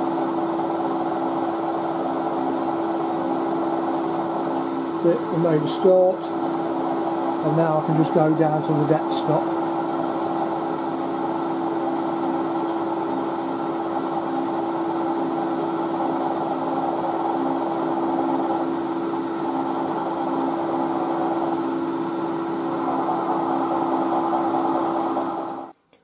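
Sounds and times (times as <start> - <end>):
milling machine spindle humming: 18.5 - 20.2, 21.1 - 21.7.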